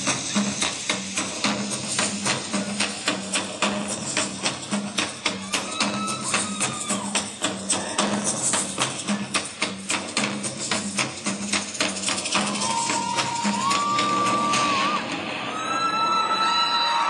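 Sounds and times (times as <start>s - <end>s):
low drum beat: 0.0s - 15.1s
fast clacking percussion: 0.0s - 16.8s.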